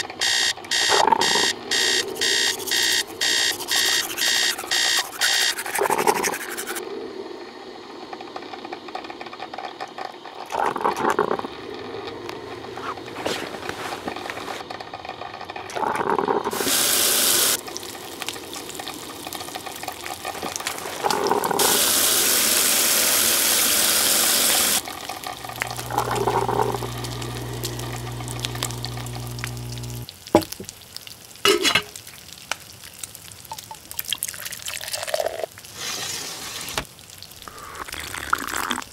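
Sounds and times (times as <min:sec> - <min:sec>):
coffee maker hissing: 0:00.0 - 0:07.2, 0:10.4 - 0:14.7, 0:15.7 - 0:30.5, 0:34.7 - 0:38.9
running water: 0:02.1 - 0:06.8, 0:15.8 - 0:30.8
low hum: 0:24.8 - 0:30.1.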